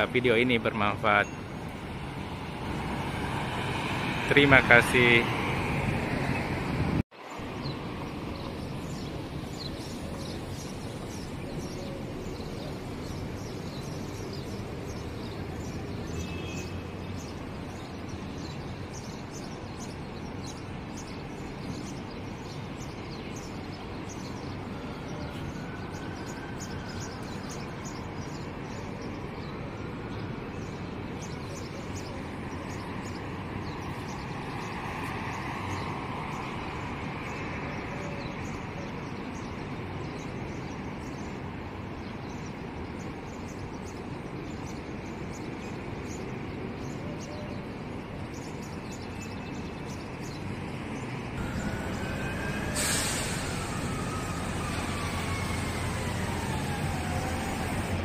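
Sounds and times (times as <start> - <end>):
traffic hum: 0.0 - 58.0
vehicle passing: 2.0 - 7.0, 51.2 - 58.0
small birds chirping: 7.3 - 58.0.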